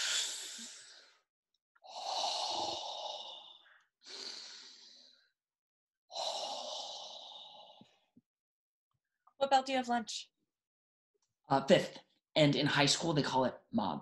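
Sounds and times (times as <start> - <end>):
person breathing deeply: 0.0 - 1.2, 1.8 - 5.3, 6.1 - 8.1.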